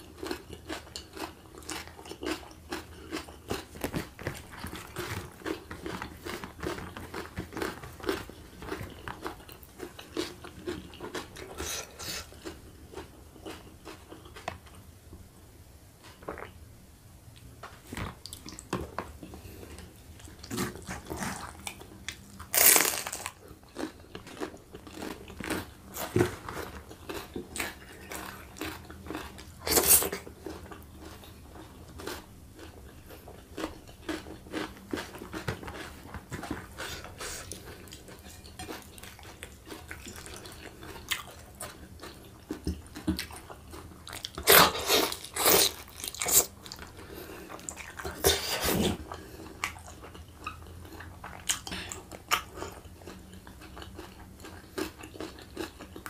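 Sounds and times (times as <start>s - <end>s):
person chewing and smacking: 0.0s - 14.9s, 17.4s - 56.0s
loud bites and crunches: 22.5s - 23.4s.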